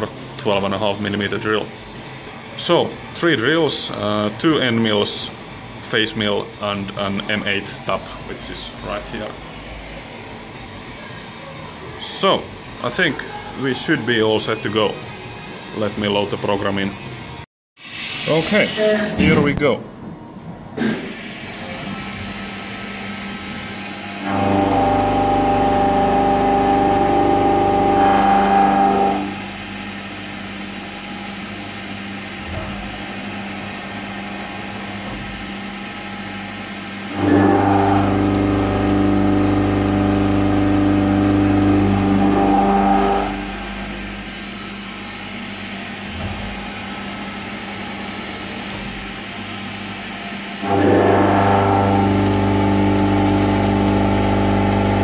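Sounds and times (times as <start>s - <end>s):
machine humming: 18.0s - 55.0s
milling machine cutting whine: 20.8s - 55.0s.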